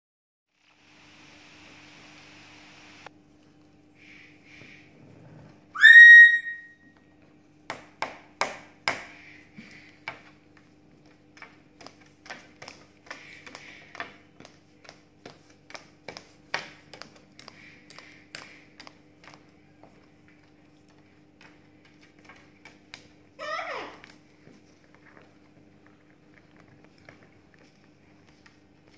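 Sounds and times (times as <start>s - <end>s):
parrot whistle: 5.7s - 6.9s
beak and claws tapping on wood: 11.0s - 19.4s.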